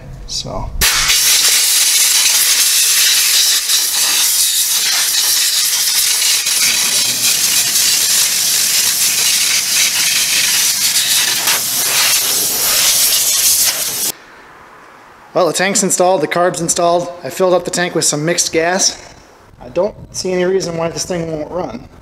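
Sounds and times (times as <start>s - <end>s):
compressed air blow gun hissing: 0.8s - 14.2s.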